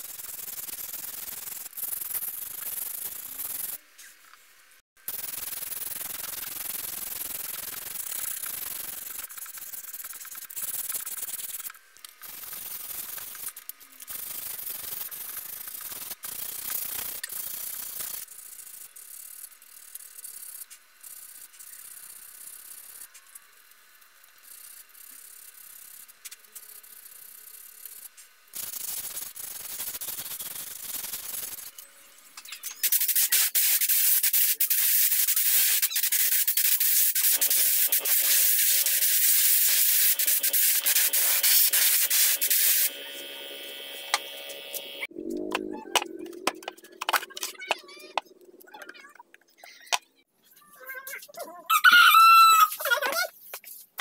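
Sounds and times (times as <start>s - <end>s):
sandpaper scratching on wood: 32.8s - 43.5s
spray gun hissing: 32.8s - 45.1s.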